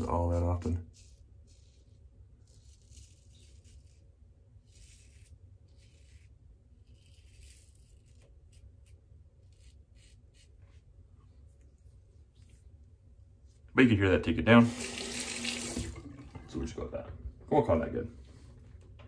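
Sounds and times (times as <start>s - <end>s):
razor scraping stubble: 0.0s - 10.9s.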